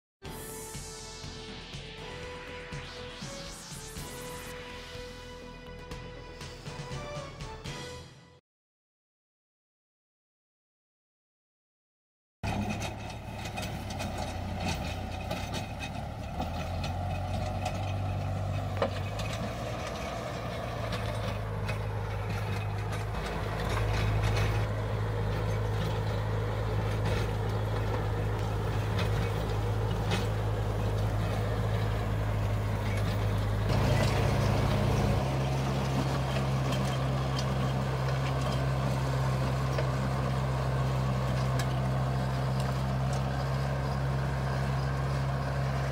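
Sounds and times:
tractor engine running under load: 12.4 - 45.9.

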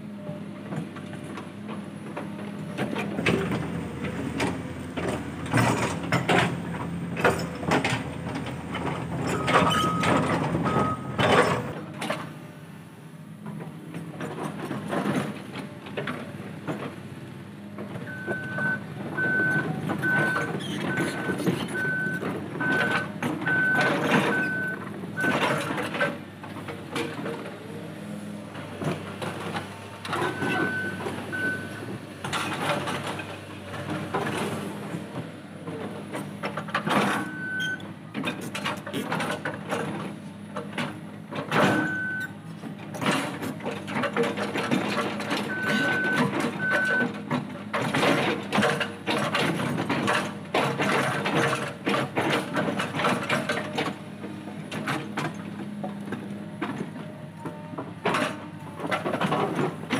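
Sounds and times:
excavator engine running: 0.0 - 59.9
travel alarm beeps: 10.7 - 11.2, 18.1 - 25.4, 30.3 - 31.8, 37.3 - 37.8, 41.8 - 42.3, 45.5 - 47.0.

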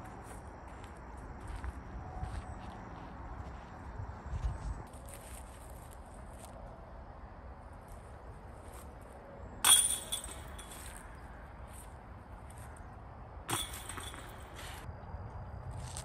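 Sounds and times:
disc hitting metal chains: 9.6 - 11.0, 13.5 - 14.8.

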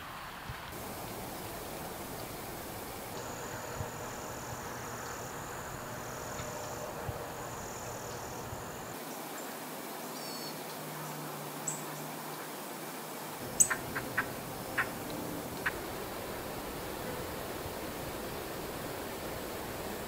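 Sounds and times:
steady hiss: 0.0 - 20.0
high insect buzz: 0.8 - 9.0, 13.4 - 20.0
faint bird chirps: 13.5 - 15.0
sharp ticks: 13.6 - 15.8.

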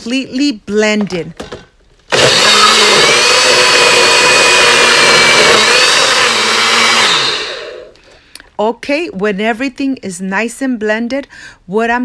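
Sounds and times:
blender motor whining: 2.1 - 8.0.

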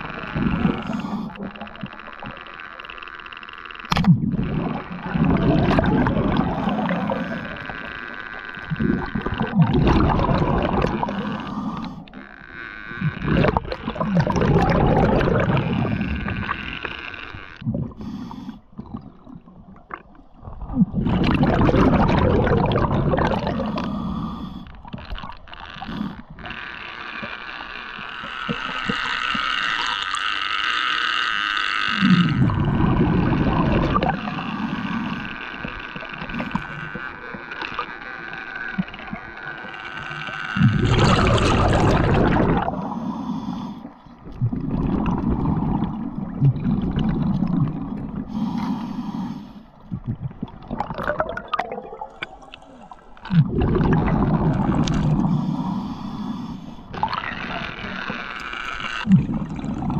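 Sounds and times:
underwater bubbling rumble: 0.0 - 2.5, 3.9 - 29.9, 31.9 - 59.9.

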